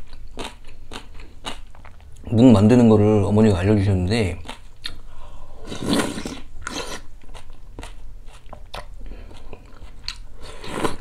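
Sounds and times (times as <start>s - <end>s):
wet chewing and crunching: 0.0s - 2.2s.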